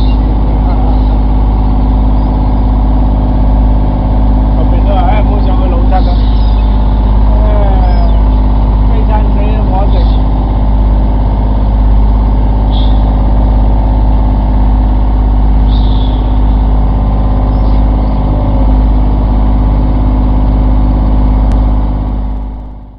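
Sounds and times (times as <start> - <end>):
seagull calls: 0.0 - 2.8, 4.9 - 8.6, 12.6 - 13.2, 15.6 - 16.8, 17.4 - 19.0
boat motor droning: 0.0 - 22.9.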